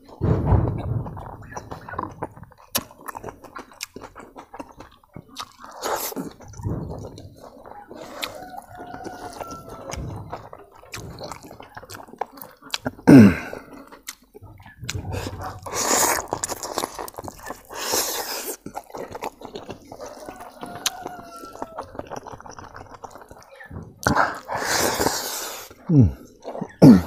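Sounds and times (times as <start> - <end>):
wet chewing and lip-smacking: 1.1 - 26.8.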